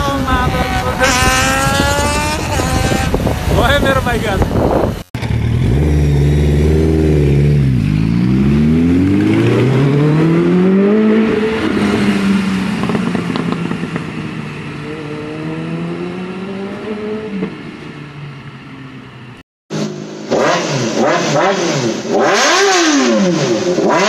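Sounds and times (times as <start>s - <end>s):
motorcycle engines accelerating: 0.0s - 18.3s, 19.7s - 24.0s
engine crackling: 0.4s - 10.6s, 11.6s - 14.7s.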